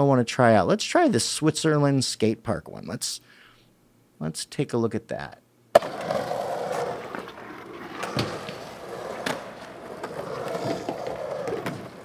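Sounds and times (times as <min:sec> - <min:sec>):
skateboard clacks: 0:05.7 - 0:12.0
skateboard wheels rumbling on concrete: 0:05.7 - 0:12.0.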